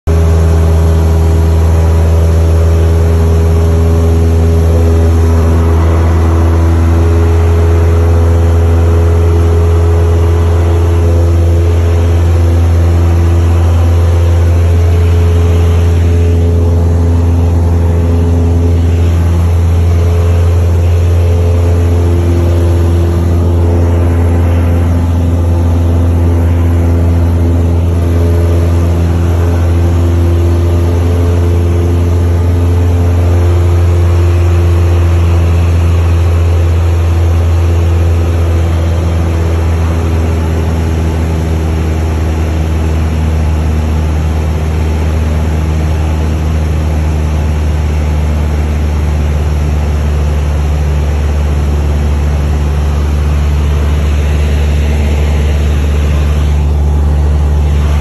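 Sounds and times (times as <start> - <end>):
airplane engine and propeller droning: 0.0 - 58.0.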